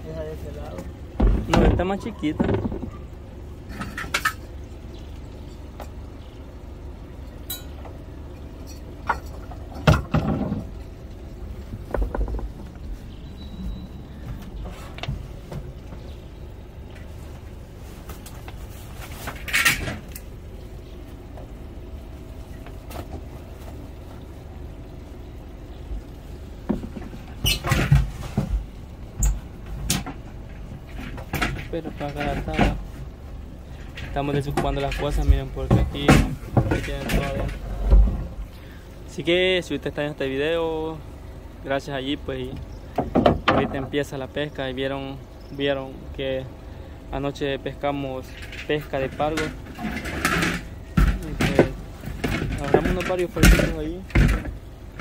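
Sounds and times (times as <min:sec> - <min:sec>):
steady low rumble: 0:00.0 - 0:27.4
gear knocking and scraping: 0:00.4 - 0:04.5, 0:07.4 - 0:20.5, 0:25.9 - 0:39.4, 0:47.6 - 0:55.0.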